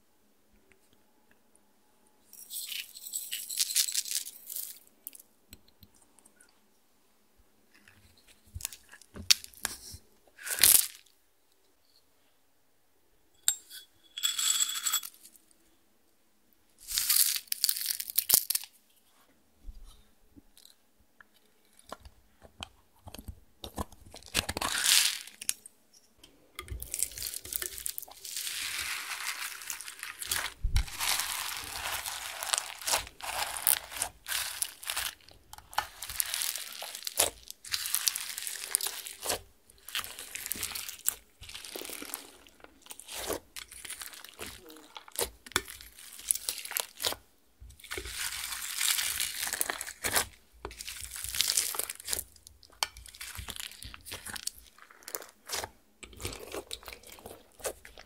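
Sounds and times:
slime clicking and squishing: 0:26.7 - 0:58.0.

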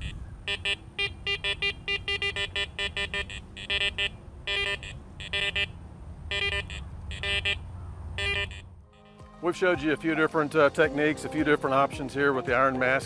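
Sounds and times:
metal detector beeps: 0:00.0 - 0:05.7, 0:06.3 - 0:07.6, 0:08.2 - 0:09.2
metal detector longer tones: 0:00.0 - 0:05.7, 0:06.3 - 0:07.6, 0:08.2 - 0:09.2.

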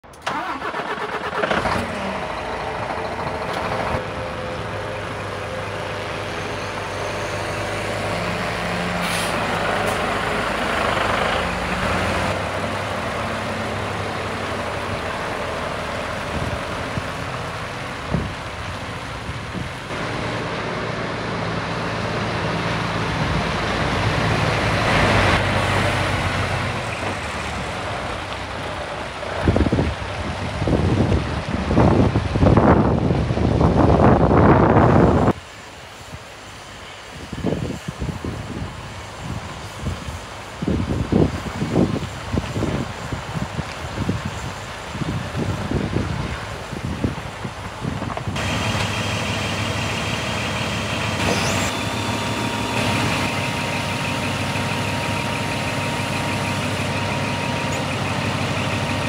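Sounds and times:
truck diesel engine idling: 0:00.0 - 0:31.6, 0:44.7 - 0:59.0
brief air hisses: 0:09.0 - 0:10.1.

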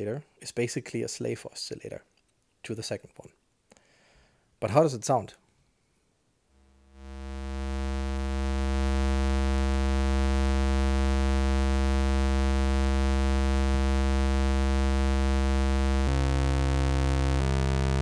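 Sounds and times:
low synth drone: 0:11.0 - 0:18.0.

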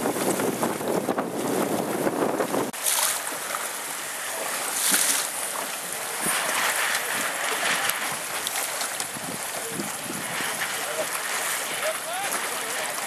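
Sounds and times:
wind rumble on microphone: 0:00.0 - 0:02.8, 0:05.8 - 0:13.0
sea water splashing around boat: 0:00.0 - 0:13.0.

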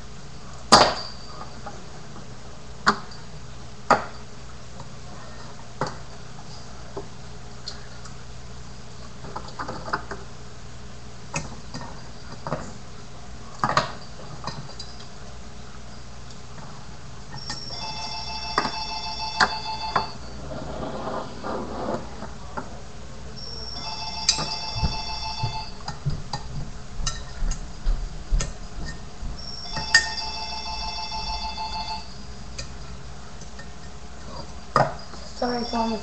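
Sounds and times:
telephone ringing: 0:17.4 - 0:20.3, 0:23.4 - 0:26.0, 0:29.4 - 0:32.3, 0:35.4 - 0:36.0.

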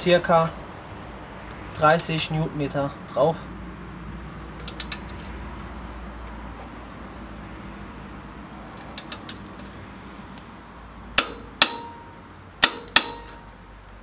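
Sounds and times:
sharp metallic tool clicks: 0:11.2 - 0:12.0, 0:12.6 - 0:13.5.

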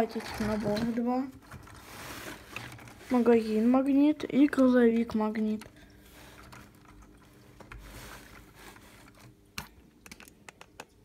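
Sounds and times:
soft rustle: 0:00.2 - 0:04.1, 0:05.8 - 0:09.4.

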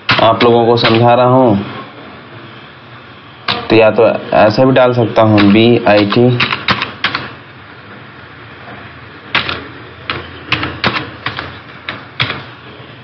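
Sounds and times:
keyboard keys clicking: 0:05.4 - 0:07.3, 0:09.3 - 0:12.4.

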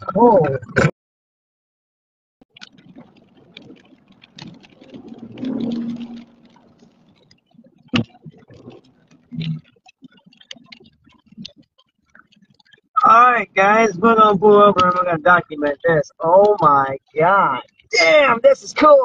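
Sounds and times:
low car rumble: 0:02.8 - 0:09.6.

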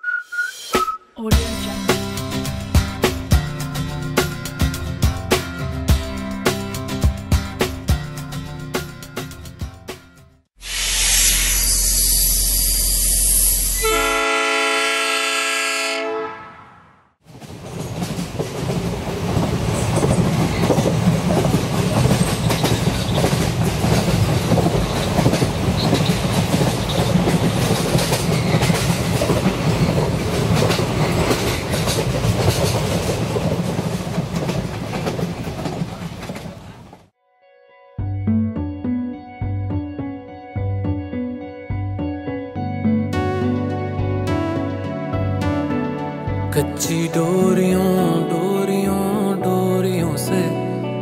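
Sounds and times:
train horn: 0:13.5 - 0:17.0
train rumble: 0:17.2 - 0:37.1
train wheels clattering over rail joints: 0:17.2 - 0:37.1.

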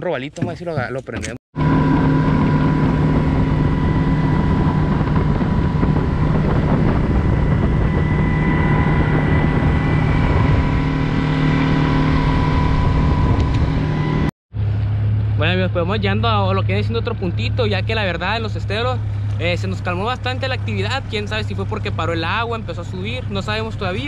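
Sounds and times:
wind noise: 0:01.2 - 0:14.8
outboard motor drone: 0:01.6 - 0:24.0
water rushing: 0:01.6 - 0:24.0.

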